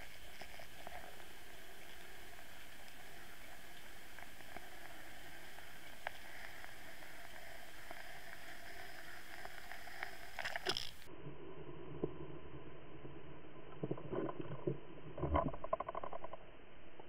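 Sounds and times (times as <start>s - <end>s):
water rushing underwater: 0.0s - 16.4s.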